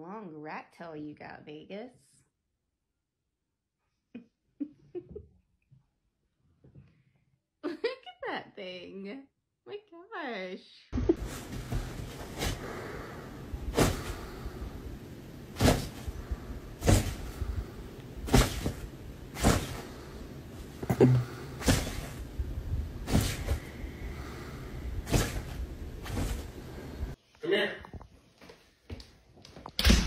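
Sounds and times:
thumps and knocks on a bed: 11.1 - 12.6, 13.7 - 14.4, 15.6 - 16.2, 16.8 - 17.6, 18.2 - 20.0, 20.8 - 23.7, 25.0 - 26.6.

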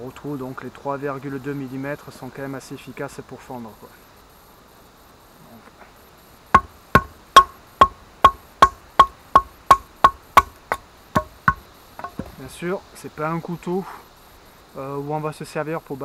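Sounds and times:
wooden baton knocking on knife spine: 6.6 - 12.4.

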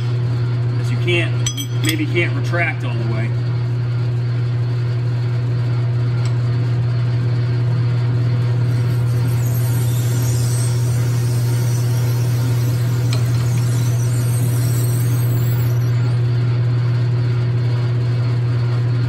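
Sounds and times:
drill squealing and hissing: 8.6 - 16.4
metal lathe humming: 8.6 - 16.4.

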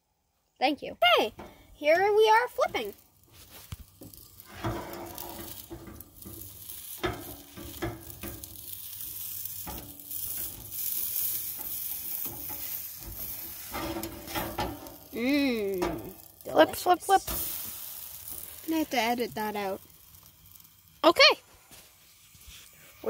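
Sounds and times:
batter sizzling in frying pan: 1.4 - 23.0
spatula scraping and tapping pan: 2.6 - 15.1.

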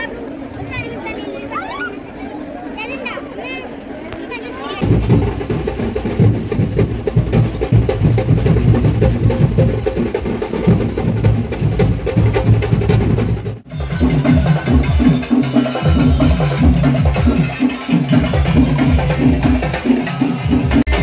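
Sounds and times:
fast dense drumming: 4.8 - 21.0
rhythm with bass line: 4.8 - 21.0.

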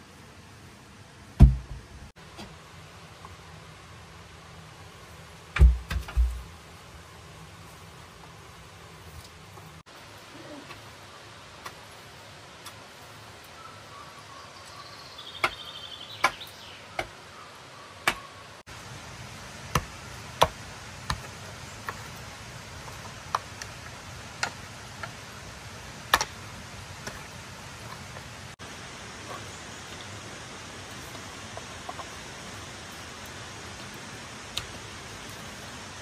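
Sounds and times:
steady hiss: 0.0 - 36.0.

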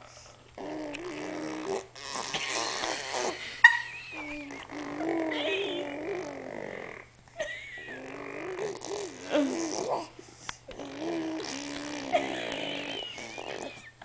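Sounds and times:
baby blowing raspberries: 0.0 - 3.5, 8.0 - 13.9.

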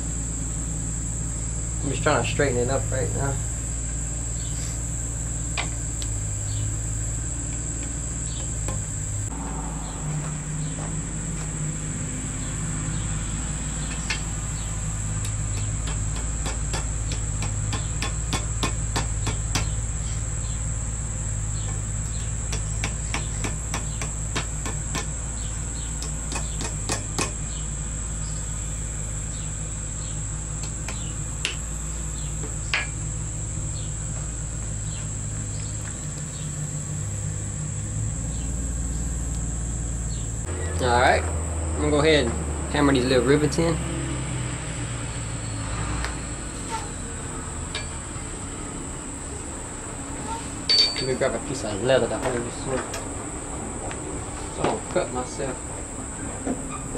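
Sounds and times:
crickets chirping: 0.0 - 56.9
hammer tapping metal on anvil: 15.2 - 19.8, 22.5 - 25.1, 26.0 - 27.4, 47.7 - 48.0, 50.7 - 51.2.

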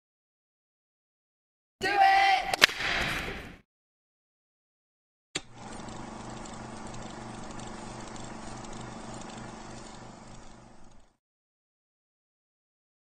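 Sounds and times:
film projector whirring: 5.4 - 11.2.

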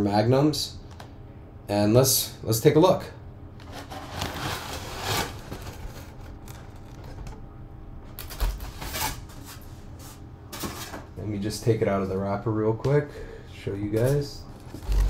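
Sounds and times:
cardboard lid rustling and scraping: 3.6 - 7.2, 14.6 - 15.0.

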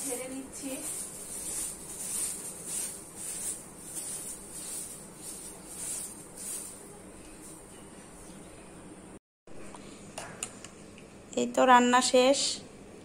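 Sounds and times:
hand broom swishing on sheet: 0.0 - 7.7.

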